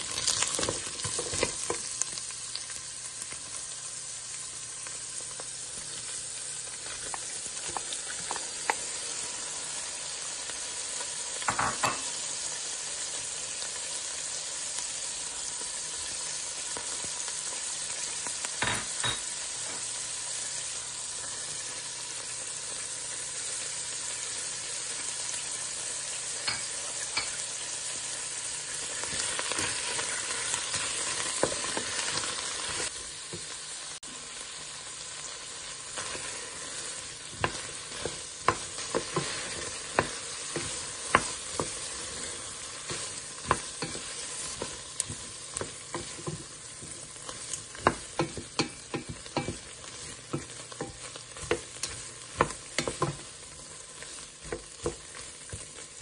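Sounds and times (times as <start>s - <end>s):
food sizzling in a pot: 0.0s - 56.0s
wooden spoon knocking a pot: 37.4s - 41.9s, 47.7s - 49.7s.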